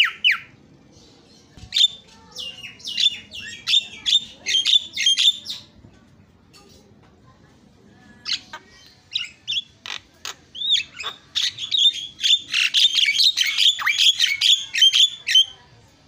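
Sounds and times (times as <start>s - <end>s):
bird singing chirps and whistles: 10.6s - 15.5s.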